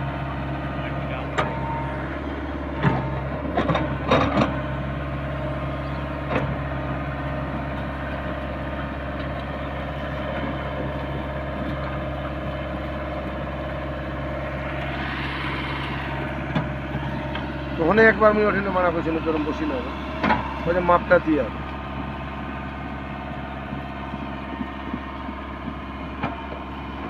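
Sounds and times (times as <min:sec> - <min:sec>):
diesel engine running: 0:00.0 - 0:27.0.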